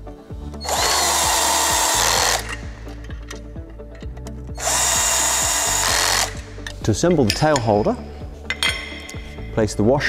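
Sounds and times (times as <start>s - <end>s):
background music: 0.0s - 10.0s
cordless drill driving a bolt: 0.6s - 2.6s, 4.6s - 6.4s.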